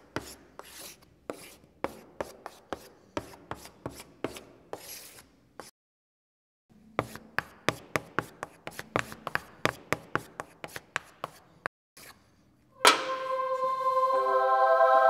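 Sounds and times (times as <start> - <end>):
music with held notes: 12.8 - 15.0.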